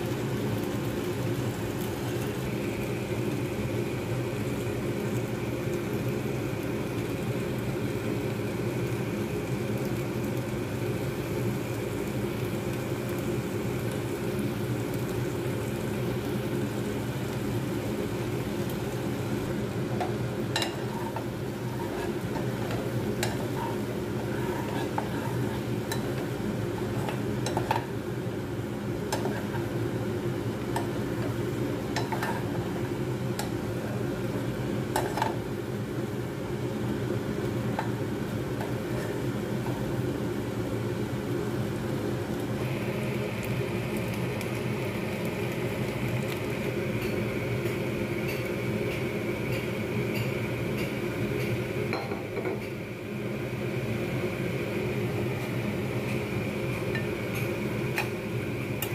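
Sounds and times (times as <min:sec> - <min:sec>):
steady low hum: 0:00.0 - 0:58.9
spatula scraping frying pan: 0:20.5 - 0:27.9, 0:29.1 - 0:29.8, 0:31.9 - 0:32.8, 0:38.6 - 0:39.8.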